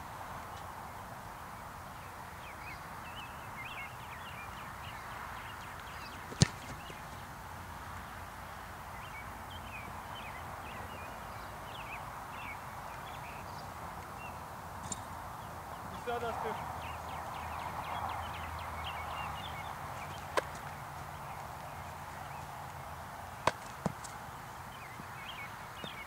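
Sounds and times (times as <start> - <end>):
steady outdoor hiss: 0.0 - 26.0
football kicked with foot: 6.2 - 7.2.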